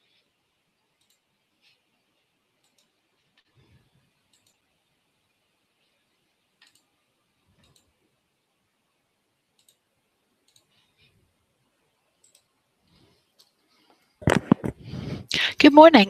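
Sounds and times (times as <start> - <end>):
computer mouse clicks: 0.9 - 1.8, 2.6 - 4.8, 6.6 - 8.0, 9.5 - 11.1, 12.1 - 12.6, 13.3 - 14.8.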